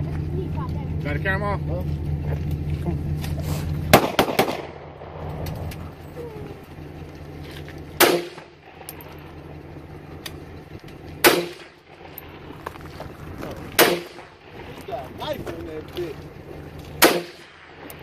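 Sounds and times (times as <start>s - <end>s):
low engine hum: 0.0s - 18.0s
rifle shots with echo: 3.9s - 5.4s, 8.0s - 8.9s, 11.2s - 12.5s, 13.7s - 14.7s, 17.0s - 18.0s.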